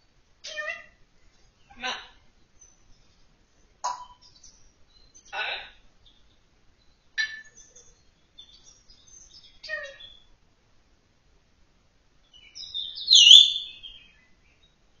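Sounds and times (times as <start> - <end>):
parrot chirping and whistling: 13.0 - 13.8.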